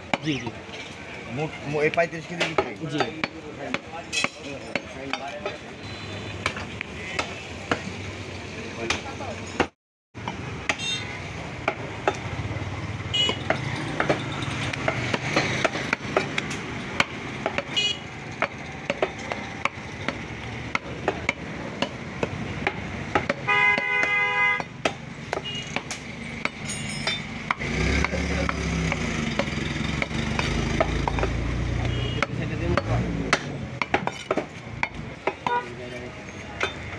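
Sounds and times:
busy market noise: 0.0s - 36.9s
vehicle horn: 10.8s - 11.1s, 13.1s - 13.5s, 17.7s - 18.1s, 23.4s - 24.7s, 31.8s - 32.4s
knife chopping meat on wood: 18.4s - 26.6s.

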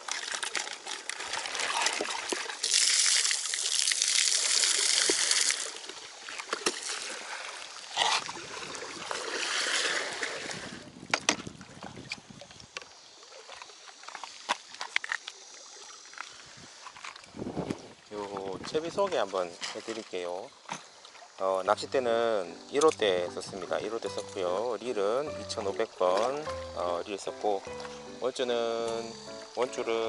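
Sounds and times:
seawater pouring and splashing: 0.0s - 12.0s
bucket handling knocks and clicks: 25.6s - 26.6s.

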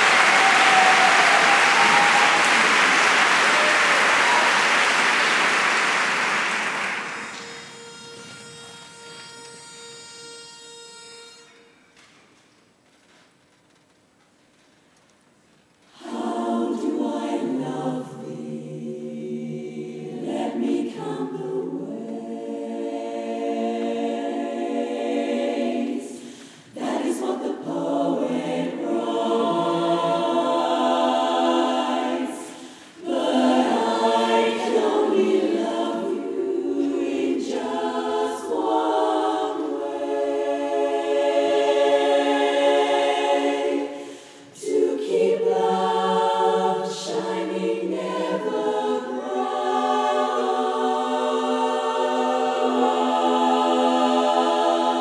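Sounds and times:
women's chorus singing a cappella: 15.9s - 55.0s.

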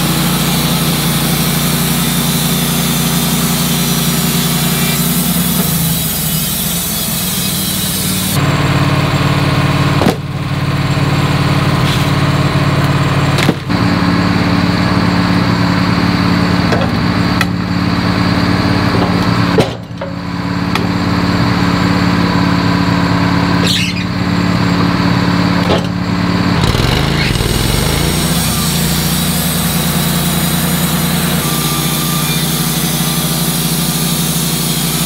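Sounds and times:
small gasoline engine running: 0.0s - 8.4s, 26.5s - 35.0s.

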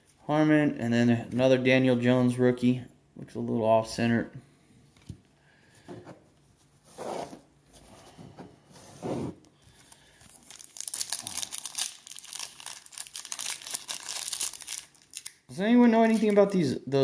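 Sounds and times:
wrapper tearing and crinkling: 9.9s - 16.4s.

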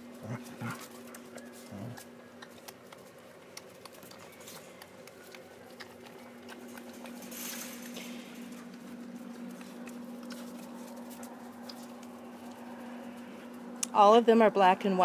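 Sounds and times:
steady low hum: 0.0s - 15.0s
puppy claws clicking on tiled floor: 0.4s - 13.2s.

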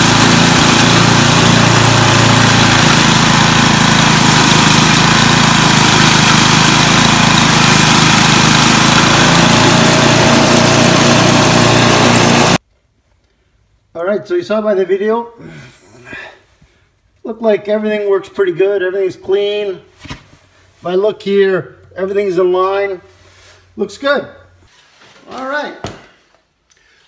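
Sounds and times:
snowblower churning snow: 0.0s - 12.6s
snowblower engine running: 0.0s - 12.6s.

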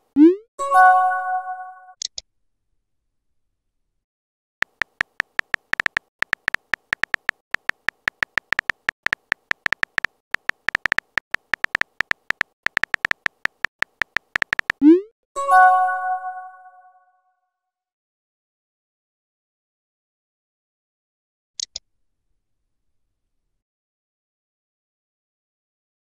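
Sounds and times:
phone keyboard typing clicks: 4.6s - 14.9s.

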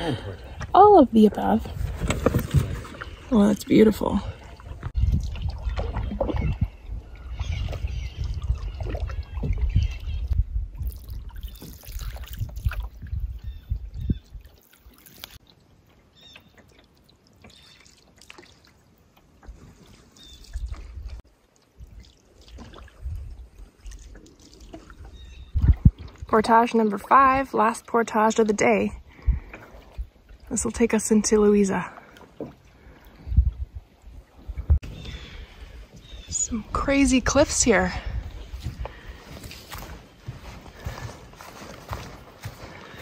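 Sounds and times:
paddle pulling through water: 0.0s - 10.4s, 11.1s - 43.0s
low rumble on microphone: 4.1s - 14.5s, 24.9s - 26.4s
water dripping off paddle: 14.3s - 26.4s.

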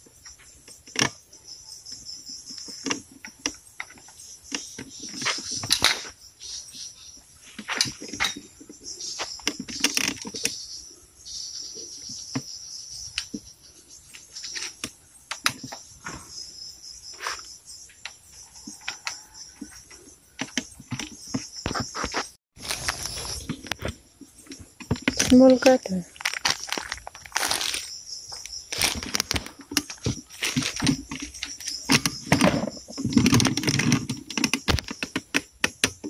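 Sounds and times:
insects buzzing: 0.0s - 36.0s
plastic crinkling: 22.6s - 23.8s, 25.1s - 27.9s, 28.7s - 31.0s.

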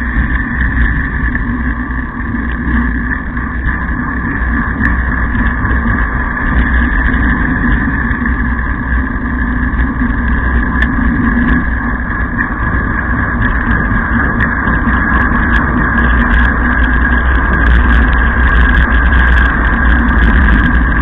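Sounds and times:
wheels rolling over asphalt: 0.0s - 21.0s
wind noise: 0.0s - 21.0s.

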